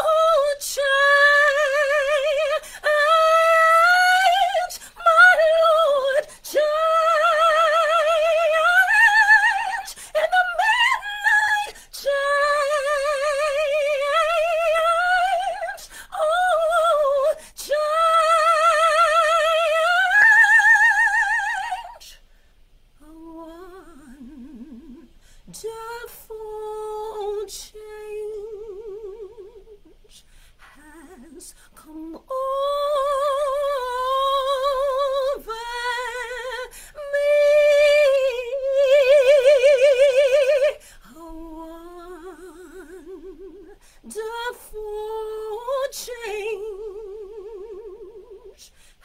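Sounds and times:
woman singing a cappella: 0.0s - 22.3s, 23.0s - 49.0s.

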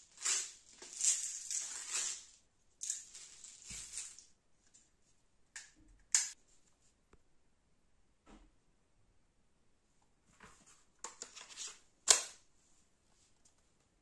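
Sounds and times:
plastic pellets rattling in bottle: 0.0s - 4.3s.

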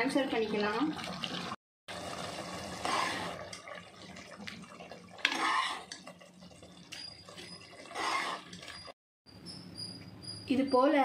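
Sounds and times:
ladle scooping wet mash: 2.7s - 8.9s.

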